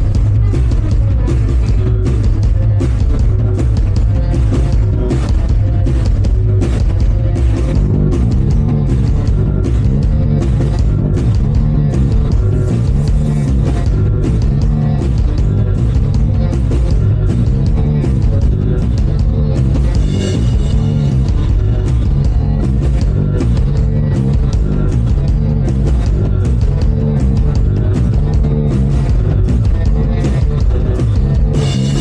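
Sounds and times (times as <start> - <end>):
drum kit: 0.0 - 32.0
electric bass: 0.0 - 32.0
electric guitar: 0.0 - 32.0.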